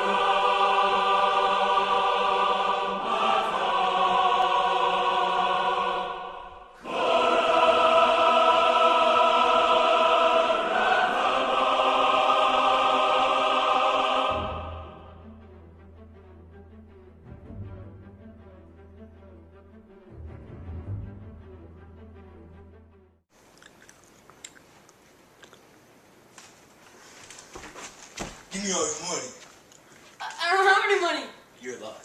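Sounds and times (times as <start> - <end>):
choir singing sustained chords: 0.0 - 22.9.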